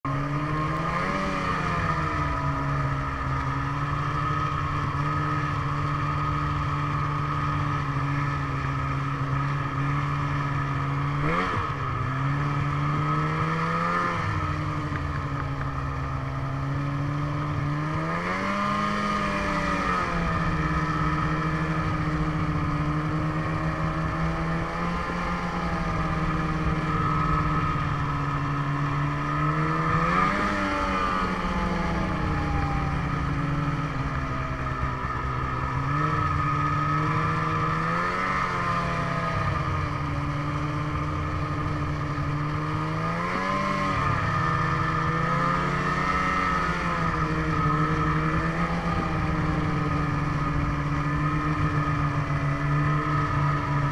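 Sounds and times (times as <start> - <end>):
snowmobile engine running: 0.0 - 53.9.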